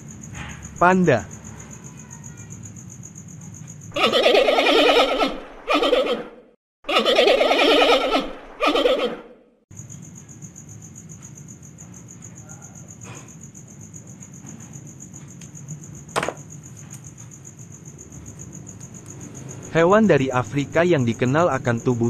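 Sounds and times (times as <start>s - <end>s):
crickets chirping: 0.0s - 6.0s, 9.7s - 22.0s
animal call: 3.9s - 9.4s
sharp knock: 16.1s - 16.4s.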